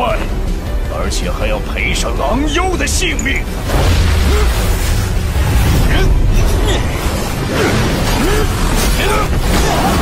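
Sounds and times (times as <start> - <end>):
background music: 0.0 - 10.0
energy blasts and impacts: 3.5 - 10.0.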